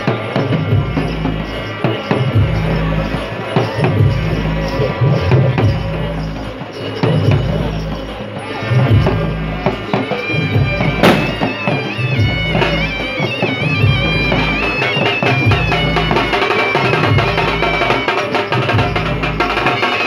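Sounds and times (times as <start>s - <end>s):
drum beats: 0.0s - 20.0s
reedy wind instrument melody: 0.0s - 20.0s.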